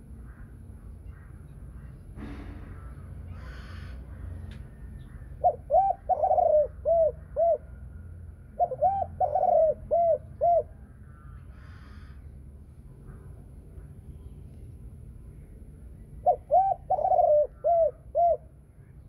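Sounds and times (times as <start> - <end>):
dove cooing: 5.0 - 7.8, 8.5 - 10.8, 16.2 - 18.6.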